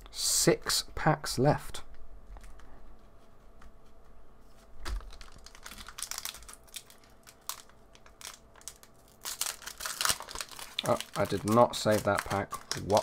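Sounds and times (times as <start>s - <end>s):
cards clicking and rustling: 4.8s - 13.0s.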